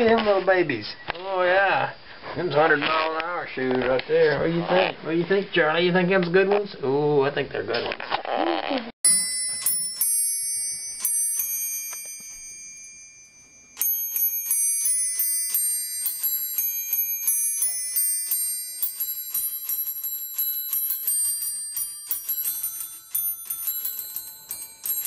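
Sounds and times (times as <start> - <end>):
small brass bells chiming: 9.0 - 25.0.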